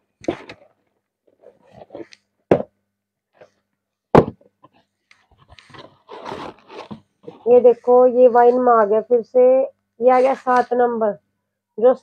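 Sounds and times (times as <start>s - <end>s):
knocks on cardboard box: 2.5s - 2.8s, 4.1s - 4.5s
cardboard scuffs: 5.6s - 7.4s.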